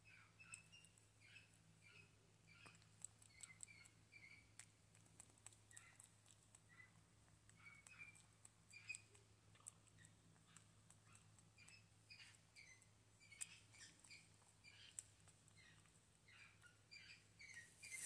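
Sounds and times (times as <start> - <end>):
monkey lip smacks and clicks: 2.6 - 16.0.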